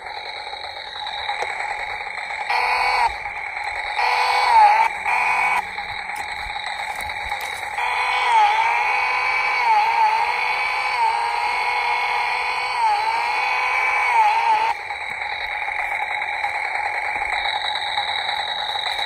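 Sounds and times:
steady idle tone: 0.0 - 19.0
toy chainsaw electronic buzz: 0.0 - 19.0.

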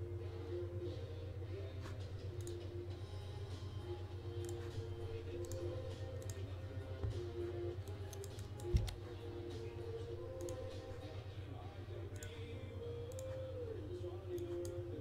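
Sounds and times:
soft background music: 0.0 - 15.0
keyboard typing: 1.9 - 2.8, 3.5 - 11.1, 12.1 - 13.6, 14.2 - 15.0.

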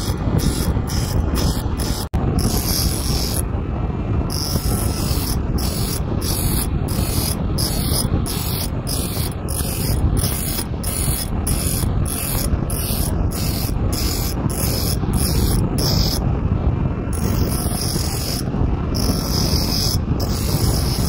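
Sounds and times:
grinding wheel rasping on saw teeth: 0.0 - 3.5, 4.3 - 16.2, 17.1 - 21.0
steady motor hum: 0.0 - 21.0.

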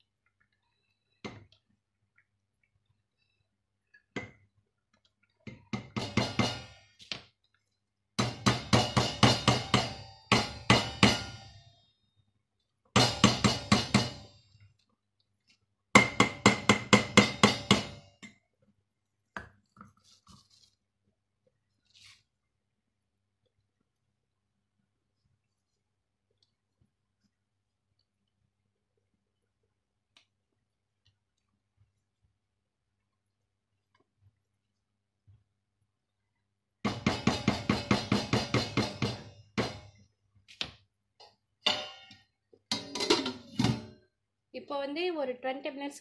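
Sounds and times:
spatula knocking metal pot: 5.5 - 7.1, 8.2 - 11.6, 12.9 - 14.3, 15.9 - 18.4, 36.8 - 40.0, 41.2 - 44.0.

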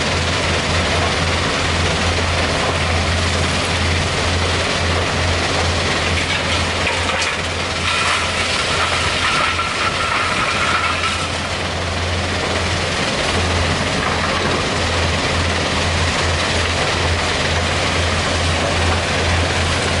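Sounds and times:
excavator diesel engine droning: 0.0 - 20.0.

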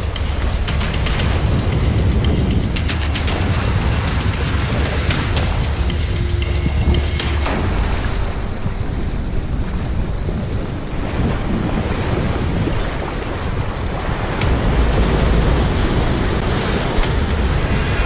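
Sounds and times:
small waves washing over sand: 0.0 - 6.2, 7.5 - 18.0
wind buffeting microphone: 0.0 - 18.0.

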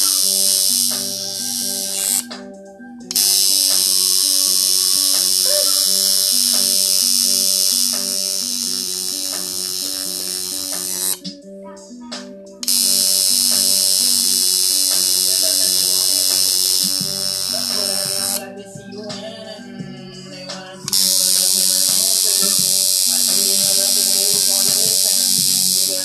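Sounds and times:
tattoo machine buzzing: 0.0 - 2.5, 3.1 - 11.3, 12.6 - 18.5, 20.9 - 26.0
background music with beat: 0.0 - 26.0.

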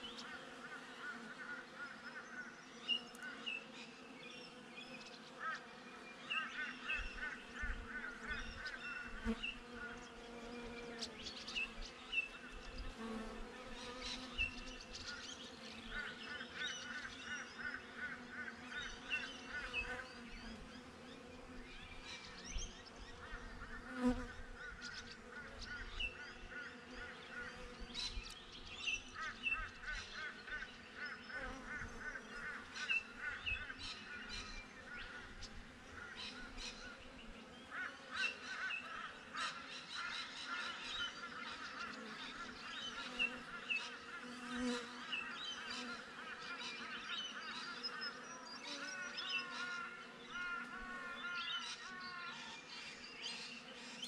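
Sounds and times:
bees buzzing: 23.6 - 24.5, 41.9 - 46.6.

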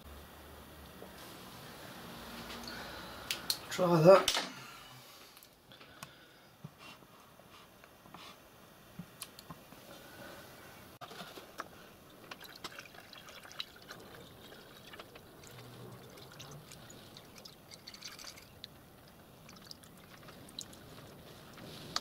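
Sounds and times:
water trickling and splashing: 11.9 - 22.0.

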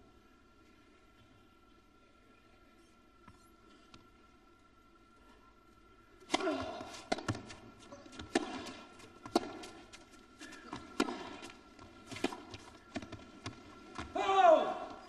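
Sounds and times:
tennis ball bouncing on court: 6.3 - 14.1
rackets hitting tennis ball: 6.3 - 14.2.

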